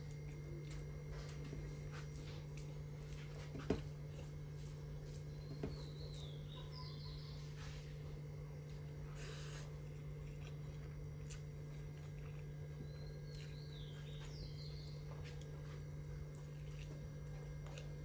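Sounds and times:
person chewing: 0:00.0 - 0:06.8, 0:08.7 - 0:18.0
steady low hum: 0:00.0 - 0:18.0
bird chirping: 0:05.3 - 0:07.5.

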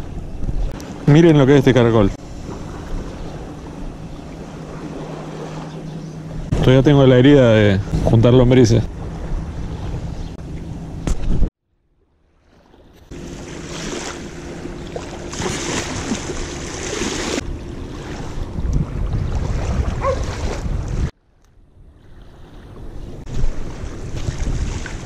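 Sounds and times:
wind buffeting microphone: 0:00.0 - 0:11.5, 0:15.3 - 0:25.0
small waves lapping: 0:00.7 - 0:08.1, 0:12.0 - 0:25.0
dog barking: 0:20.0 - 0:20.3.

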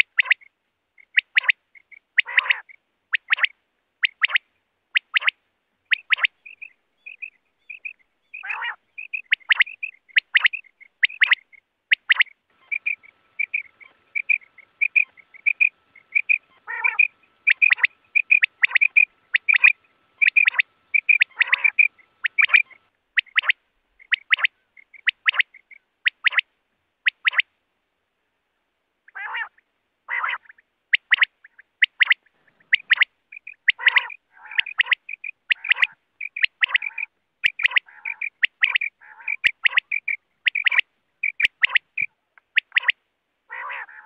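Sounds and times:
quail calling: 0:00.0 - 0:27.5, 0:29.1 - 0:44.0.

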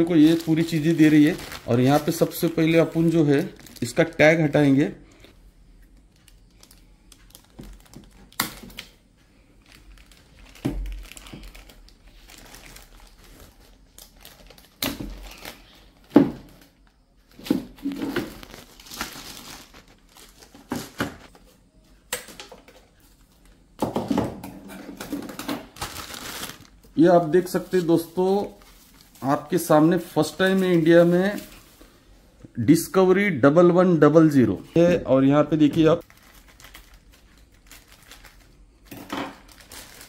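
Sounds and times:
plastic bags crinkling: 0:00.0 - 0:05.3, 0:05.9 - 0:21.4, 0:24.9 - 0:31.8, 0:36.0 - 0:40.0.

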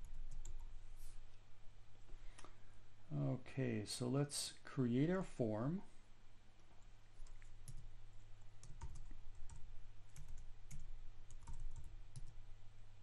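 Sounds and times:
keyboard typing: 0:00.0 - 0:00.7, 0:07.2 - 0:12.4
steady low hum: 0:00.0 - 0:13.0.

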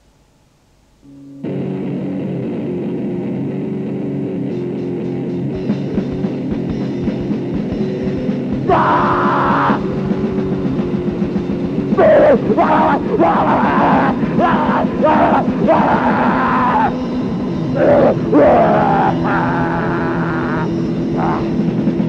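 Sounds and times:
faint hiss: 0:00.0 - 0:01.4
rock song guitars and drums: 0:01.4 - 0:22.0
person shouting: 0:08.7 - 0:09.9, 0:12.0 - 0:17.0, 0:17.8 - 0:21.6.

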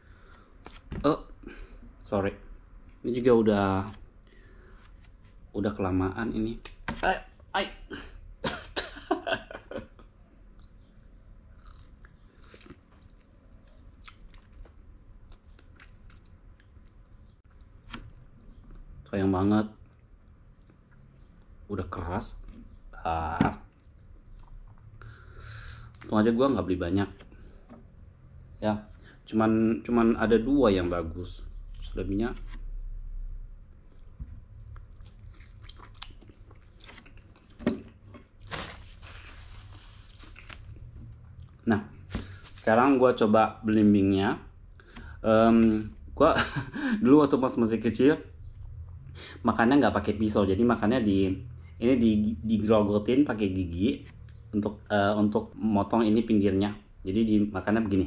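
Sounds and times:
faint chewing: 0:10.4 - 0:17.8, 0:23.7 - 0:26.1, 0:33.7 - 0:41.6.

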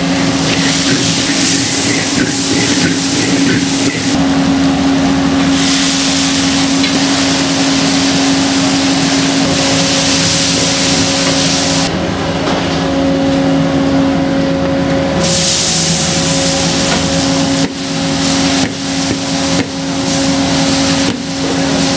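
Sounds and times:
burner and extraction roar: 0:00.0 - 0:21.9
food sizzling in a wok: 0:15.3 - 0:21.9.

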